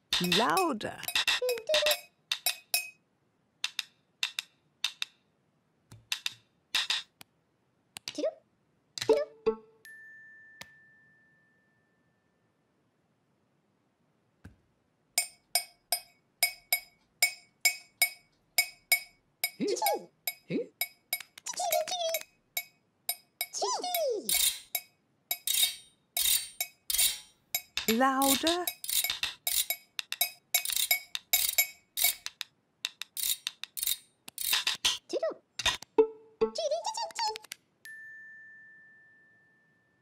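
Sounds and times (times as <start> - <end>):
wooden spoons clacking together: 0.0 - 3.0, 24.3 - 35.0.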